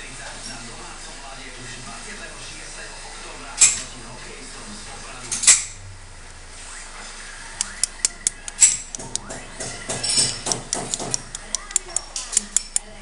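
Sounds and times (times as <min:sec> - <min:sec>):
metal clicks: 0:07.6 - 0:09.3, 0:10.0 - 0:12.9
small hammer tapping metal: 0:07.6 - 0:12.9.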